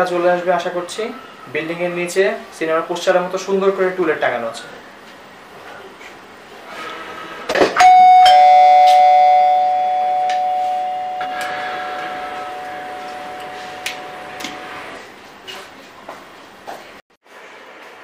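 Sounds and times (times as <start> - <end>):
two-note doorbell chime: 7.8 - 14.3.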